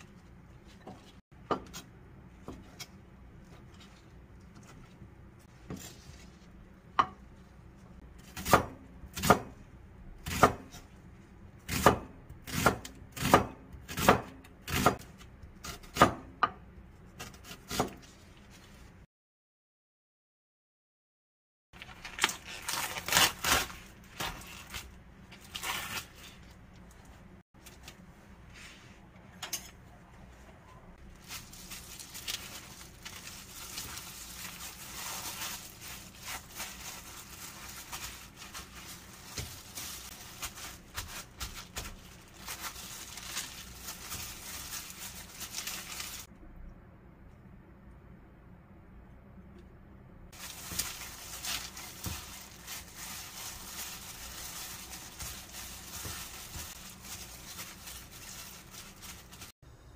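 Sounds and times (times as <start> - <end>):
paper towels and gloves rustling: 2.7 - 8.0, 30.0 - 46.3, 50.3 - 59.5.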